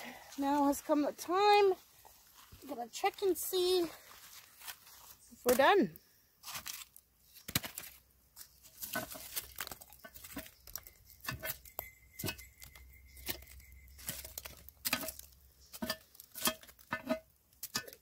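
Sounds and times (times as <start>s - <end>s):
embers scraped off iron lid: 8.6s - 18.0s.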